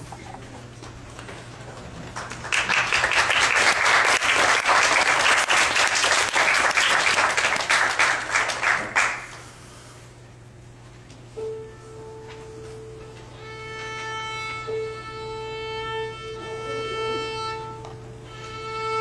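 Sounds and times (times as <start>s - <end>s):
audience applauding: 2.0s - 9.4s.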